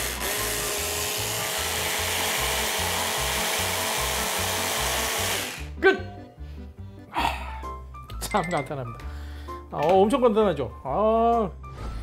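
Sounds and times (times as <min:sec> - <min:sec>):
hand blender whirring: 0:00.0 - 0:05.8.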